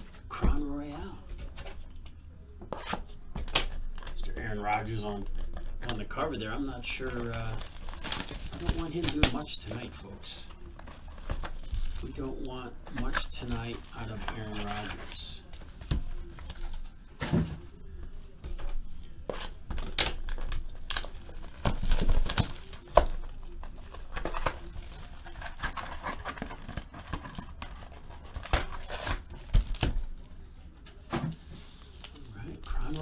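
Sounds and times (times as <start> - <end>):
foil wrappers crinkling: 3.4 - 17.1, 19.3 - 33.0
packaging tearing: 6.7 - 9.8, 19.7 - 30.2.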